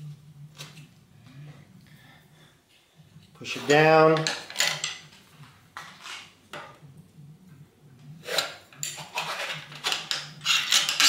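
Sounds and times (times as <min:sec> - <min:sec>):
metal rod scraping inside tube: 0:08.2 - 0:11.0.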